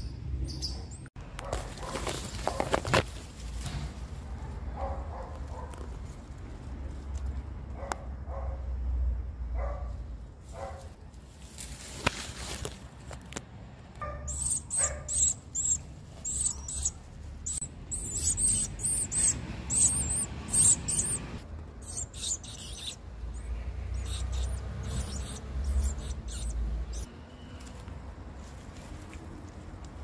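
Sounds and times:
nestlings chirping: 14.0 - 27.2.

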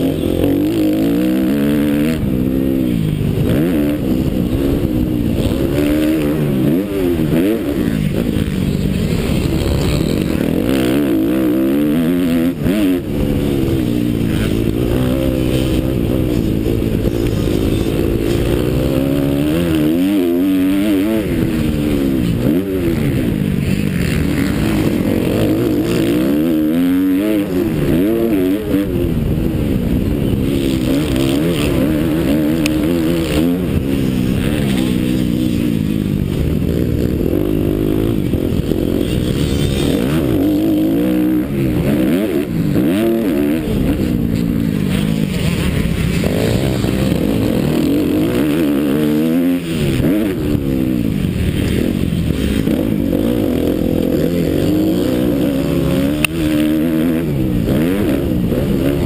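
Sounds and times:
motocross bike engine revving: 0.0 - 59.0.

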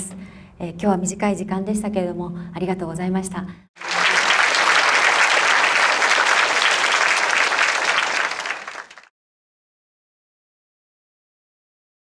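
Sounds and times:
audience applauding: 3.8 - 9.1.

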